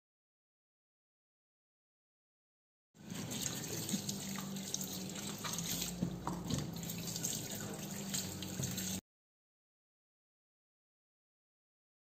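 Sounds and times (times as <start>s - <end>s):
hands rinsing vegetables: 3.0s - 9.0s
tap running into steel sink: 5.3s - 7.4s.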